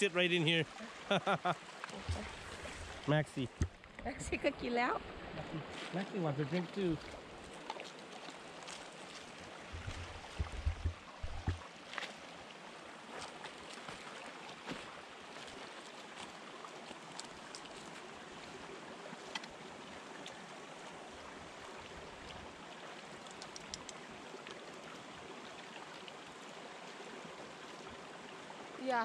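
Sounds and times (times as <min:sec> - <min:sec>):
water trickling down waterfall: 0:00.0 - 0:29.0
faint clicks: 0:23.2 - 0:24.6.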